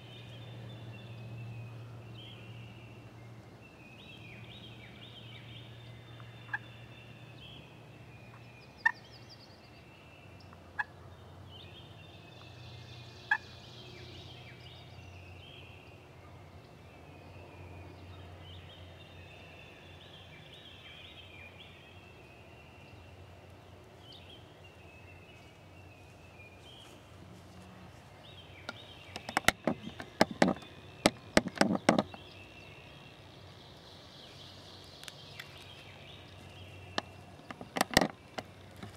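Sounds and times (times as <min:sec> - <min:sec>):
wild turkey calling: 0:08.8 - 0:09.0.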